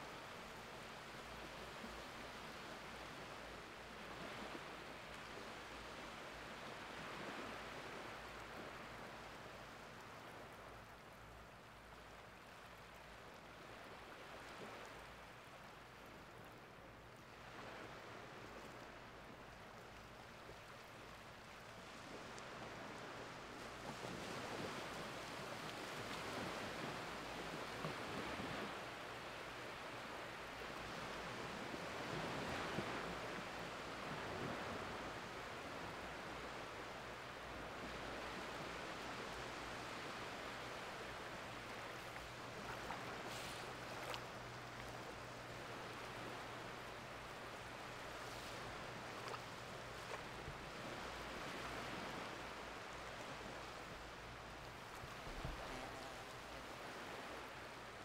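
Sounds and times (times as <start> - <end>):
gentle waves washing over sand: 0.0 - 58.0.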